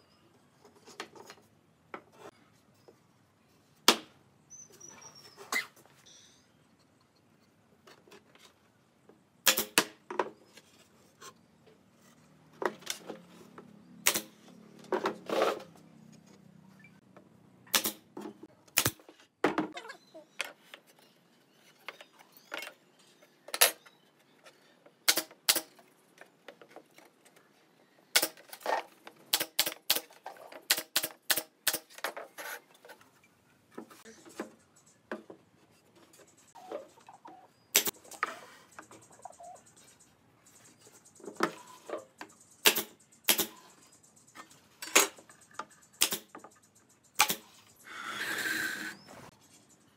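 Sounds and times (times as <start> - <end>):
nail gun firing into boards: 9.4 - 10.0, 14.0 - 14.4, 17.7 - 19.1, 25.0 - 25.8, 28.1 - 28.5, 29.3 - 32.1, 37.7 - 37.9, 42.6 - 43.6, 46.0 - 46.4, 47.2 - 47.5.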